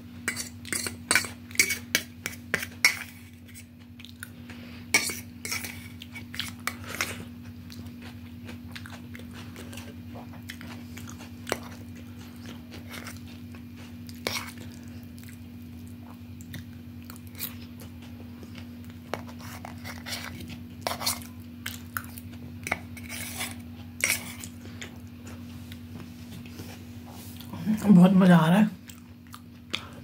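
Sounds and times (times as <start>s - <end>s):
steady low hum: 0.0s - 30.0s
fork scraping on metal plate: 0.3s - 3.6s, 22.7s - 24.5s.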